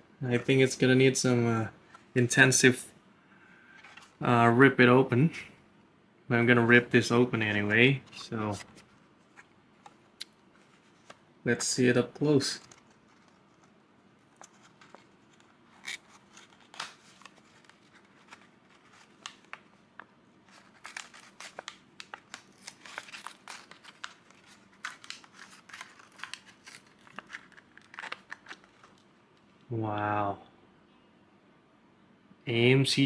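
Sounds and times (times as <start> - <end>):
plastic and card crackling: 7.3 - 29.6.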